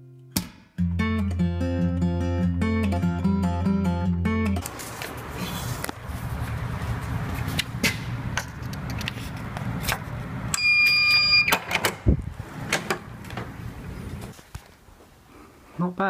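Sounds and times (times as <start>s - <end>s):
key card lock beeping: 10.6s - 11.8s.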